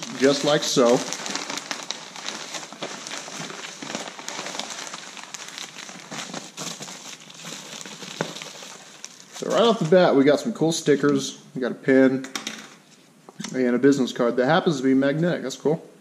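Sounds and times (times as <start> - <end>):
packaging crinkling and rustling: 0.0 - 10.2.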